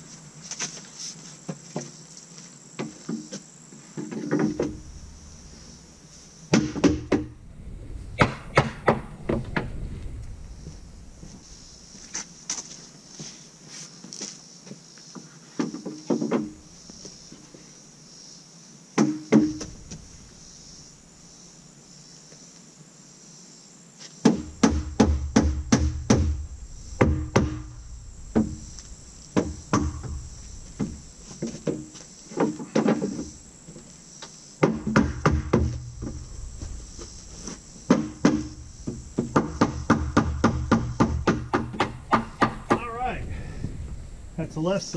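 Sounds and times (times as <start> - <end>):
high insect buzz: 0.0 - 44.9
wooden boards knocking: 6.5 - 7.4, 24.2 - 26.4, 34.6 - 36.2, 37.9 - 42.9.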